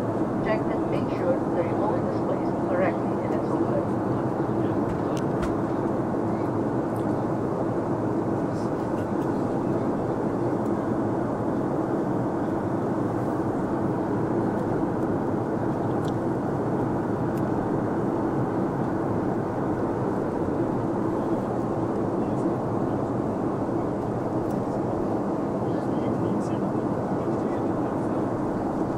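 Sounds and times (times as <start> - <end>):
airliner cabin engine rush: 0.0 - 28.9.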